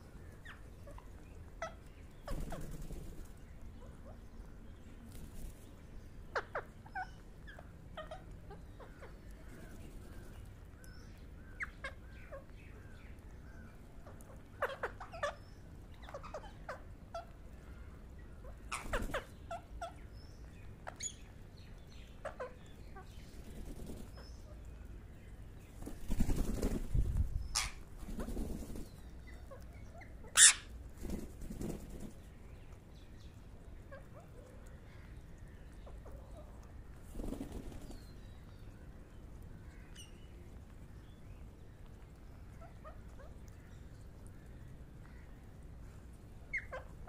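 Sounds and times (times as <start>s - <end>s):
parakeets chirping and squawking: 0.4s - 2.9s, 6.3s - 9.2s, 14.1s - 17.3s, 18.4s - 20.1s, 22.2s - 23.2s, 27.4s - 28.5s, 29.4s - 30.8s, 46.5s - 47.0s
wings fluttering: 2.2s - 3.5s, 5.0s - 5.8s, 18.7s - 19.3s, 23.2s - 24.2s, 25.7s - 29.0s, 30.4s - 32.3s, 36.9s - 38.2s.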